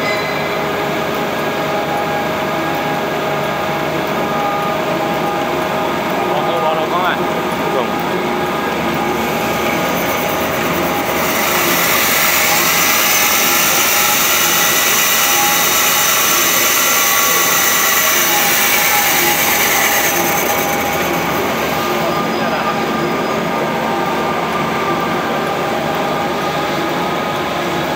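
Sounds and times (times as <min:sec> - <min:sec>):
paper machine running: 0:02.6 - 0:24.1
grinder grinding metal: 0:04.4 - 0:24.1.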